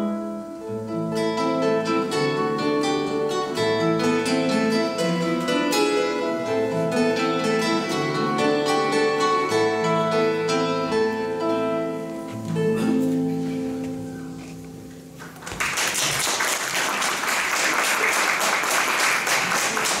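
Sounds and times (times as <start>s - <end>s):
classical guitars playing chords: 0.0s - 20.0s
audience applause: 15.4s - 20.0s.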